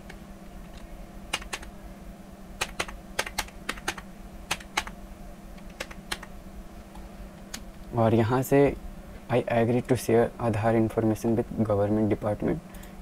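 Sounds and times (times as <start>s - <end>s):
keyboard keys clicking: 1.3s - 1.7s, 2.6s - 5.0s, 5.6s - 6.3s.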